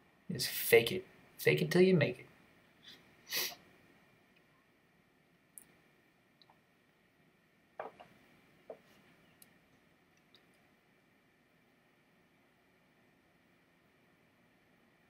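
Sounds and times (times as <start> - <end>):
faint clicks and taps: 7.8 - 10.7.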